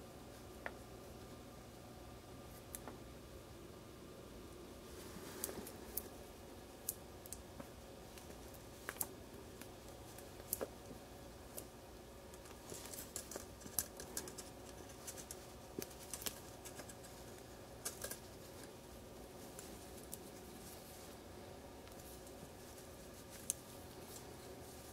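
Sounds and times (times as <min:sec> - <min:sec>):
small parts clicking and scratching: 0:12.3 - 0:18.7.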